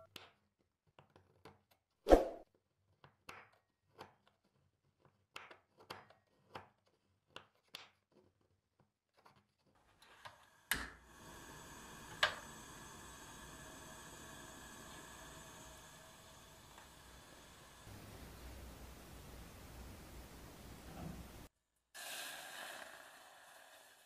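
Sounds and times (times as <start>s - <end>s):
gas burner hissing: 10.0s - 24.0s
stove igniter click: 11.8s - 17.2s.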